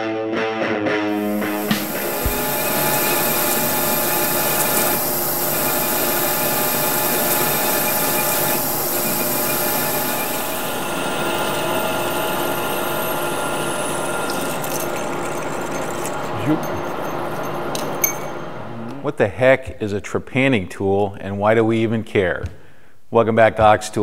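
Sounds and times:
high hiss: 0:01.1 - 0:16.3
metal lathe machine whine: 0:01.1 - 0:18.6
tool cutting metal: 0:01.2 - 0:18.3.

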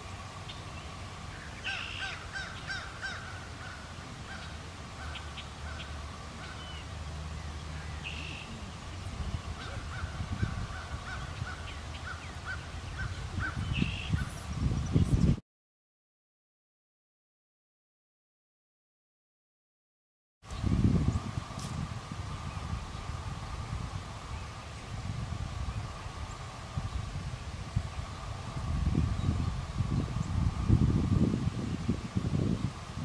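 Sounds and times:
low steady rumble: 0:00.0 - 0:15.2
birds calling: 0:00.0 - 0:15.4.

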